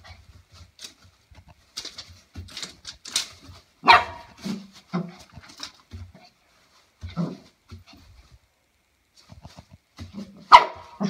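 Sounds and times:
plastic sheeting crinkling: 0:00.0 - 0:11.0
dog barking: 0:03.8 - 0:04.4, 0:10.5 - 0:11.0.

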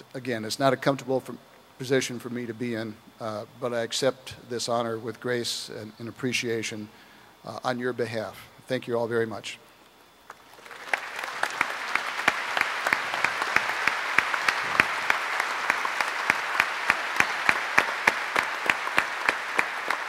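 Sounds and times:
large audience applauding: 0:10.3 - 0:20.0
sharp close claps: 0:10.3 - 0:20.0.

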